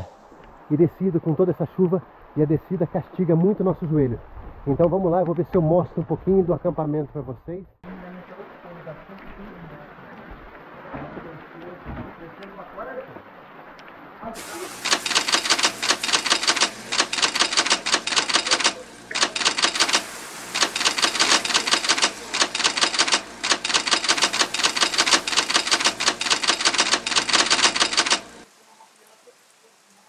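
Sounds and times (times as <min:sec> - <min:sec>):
typewriter keys clacking: 0:14.7 - 0:28.3.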